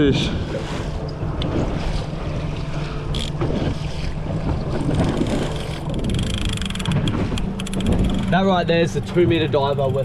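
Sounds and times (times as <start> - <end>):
outboard motor running: 0.0 - 10.0
water rushing along hull: 0.0 - 10.0
fishing reel clicker ticking: 3.1 - 3.4, 5.8 - 8.2.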